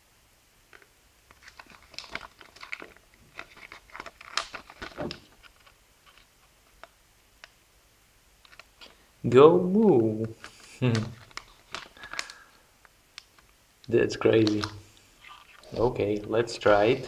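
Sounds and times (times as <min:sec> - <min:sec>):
paper crinkling and rustling: 0:01.3 - 0:06.9, 0:10.3 - 0:12.5, 0:14.3 - 0:17.0.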